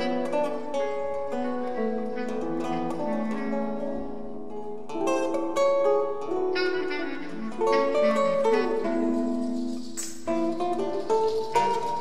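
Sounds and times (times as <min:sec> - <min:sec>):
low bass clarinet tones: 0:00.0 - 0:04.5, 0:06.2 - 0:09.6
plucked acoustic guitar: 0:00.0 - 0:12.0
hand drum strokes: 0:07.3 - 0:12.0.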